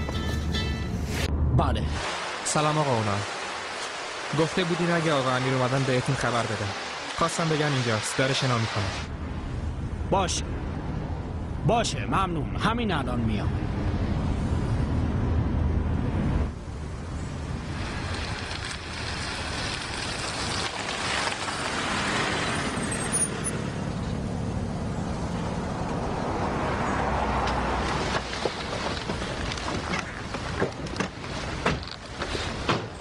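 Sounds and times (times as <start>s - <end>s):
car engine and tyres: 0.0s - 1.6s, 9.1s - 33.0s.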